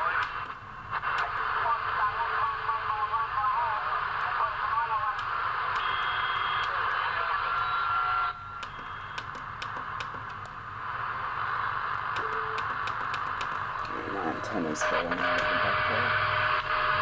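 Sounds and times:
radio static hiss: 0.0s - 17.0s
faint radio whistles: 5.6s - 9.4s
channel switch clicks: 8.6s - 10.6s, 12.2s - 14.0s.

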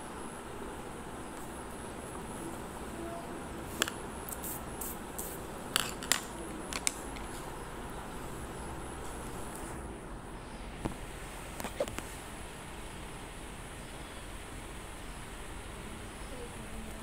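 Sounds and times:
steady low hiss: 0.0s - 17.0s
pencil and paper handling clicks: 5.2s - 7.4s.

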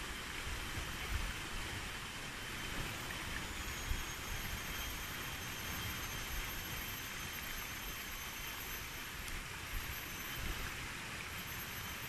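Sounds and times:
wind rumble on microphone: 0.0s - 6.9s
forest ambience hiss: 0.0s - 12.0s
thin continuous whine: 0.0s - 12.0s
higher whine: 2.8s - 12.0s.

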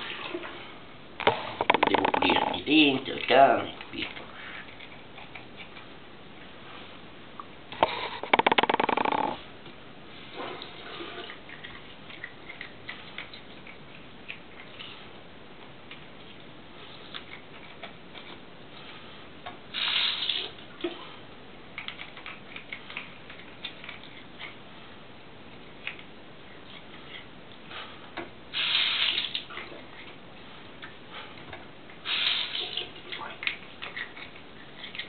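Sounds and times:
dog's teeth clicking and scratching: 1.2s - 2.9s, 3.8s - 5.9s, 7.8s - 9.4s, 11.3s - 15.0s, 21.7s - 24.6s, 32.2s - 35.0s.

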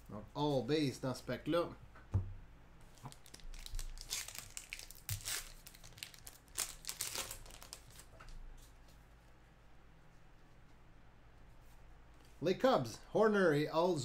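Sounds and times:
wrapper crinkling and tearing: 2.9s - 8.1s.

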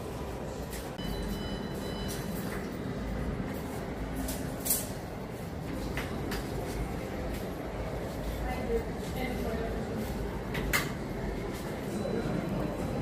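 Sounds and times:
shop background hum: 0.0s - 13.0s.

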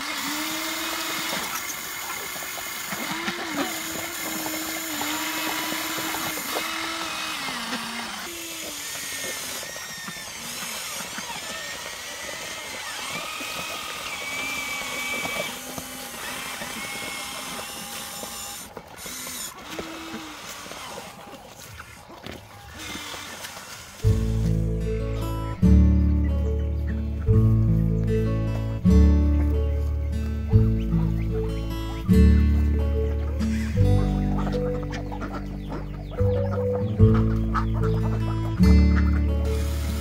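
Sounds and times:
toy excavator motors whining: 0.0s - 24.7s, 33.4s - 35.9s, 39.0s - 40.0s.

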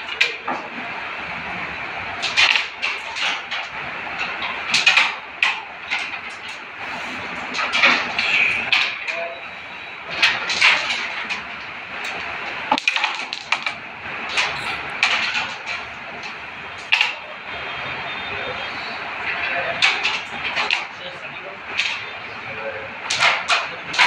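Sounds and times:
carrom pieces clicking: 12.1s - 17.2s.

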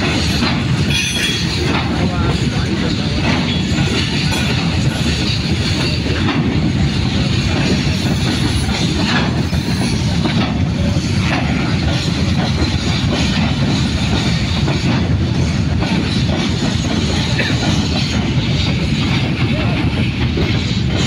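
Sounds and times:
train wheels rumbling on rail: 0.0s - 21.0s
wagons clanking: 0.0s - 21.0s.

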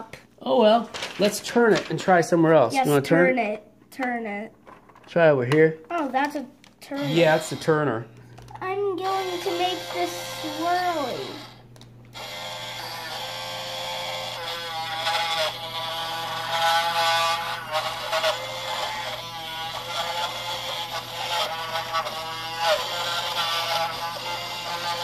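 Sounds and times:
bit grinding into crayon: 6.9s - 7.8s, 9.0s - 11.6s, 12.2s - 25.0s
small motor whining: 6.9s - 25.0s.

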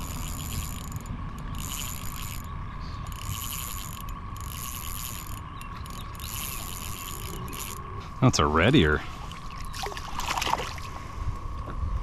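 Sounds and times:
fishing reel whirring and clicking: 0.0s - 7.9s
faint high whine: 0.0s - 12.0s.

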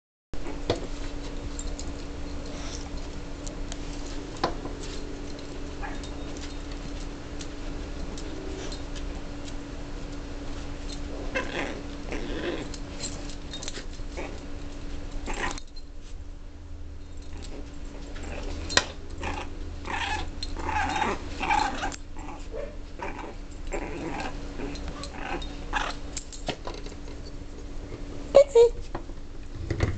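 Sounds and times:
dogs play growling: 0.4s - 15.8s, 17.0s - 28.2s
steady hum: 0.4s - 29.9s
puppy yelping: 5.8s - 6.3s, 19.2s - 26.0s.

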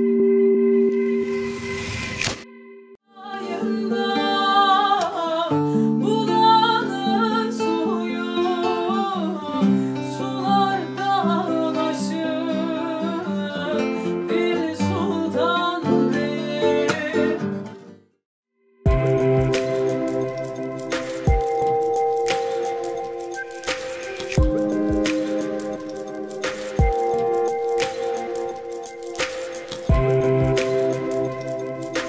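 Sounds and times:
woman singing: 3.1s - 17.5s
plucked lute and acoustic guitar: 3.3s - 18.0s.

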